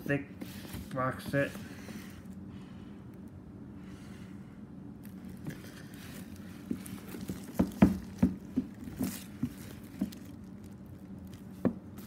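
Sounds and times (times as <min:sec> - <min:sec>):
low steady hum: 0:00.0 - 0:12.0
light knocks on cardboard box: 0:07.5 - 0:10.1.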